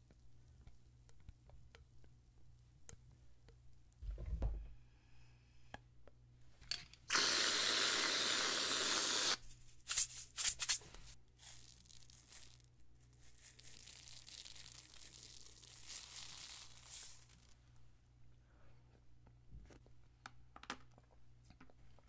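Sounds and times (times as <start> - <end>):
aerosol can spraying hiss: 7.1 - 9.4
plastic shaker rattling: 9.8 - 17.6.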